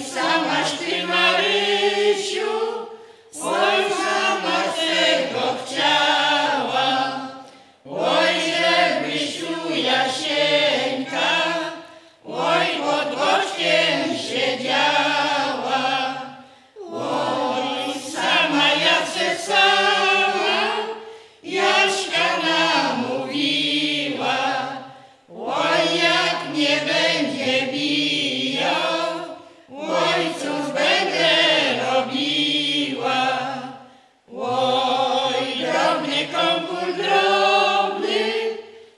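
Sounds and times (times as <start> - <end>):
women and men singing in unison: 0.0 - 38.9.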